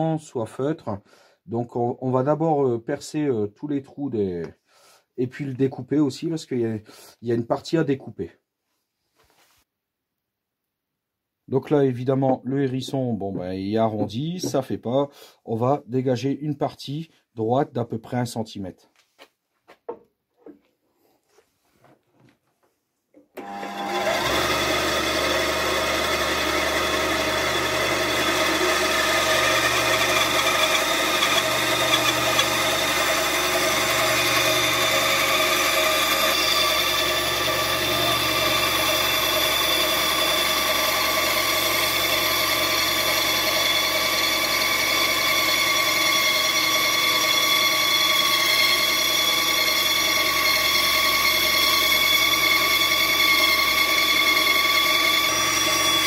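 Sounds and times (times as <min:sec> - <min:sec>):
bandsaw cutting wood: 0:23.4 - 0:56.0.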